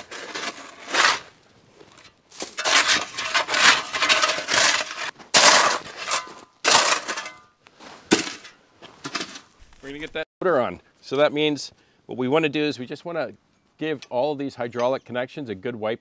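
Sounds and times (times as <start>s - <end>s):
metal shovel scraping ice: 0.0s - 8.5s.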